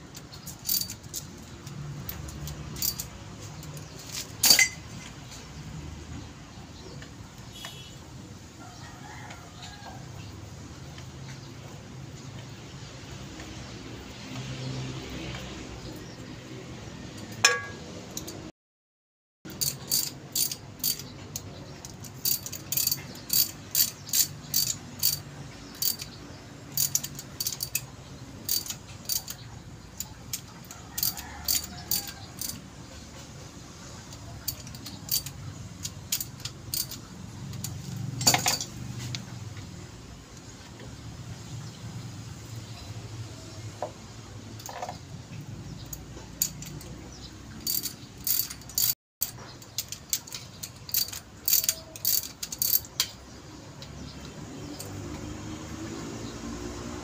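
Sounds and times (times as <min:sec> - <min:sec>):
ratchet wrench clicking: 0:00.1 - 0:04.8, 0:19.5 - 0:32.7, 0:34.0 - 0:39.2, 0:45.8 - 0:53.2
metal knock: 0:17.4 - 0:17.9.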